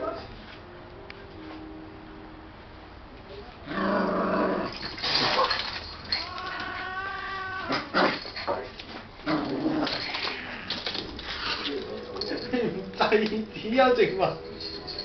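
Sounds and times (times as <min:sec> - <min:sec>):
animals whining and growling: 0:03.6 - 0:08.2, 0:09.2 - 0:13.8.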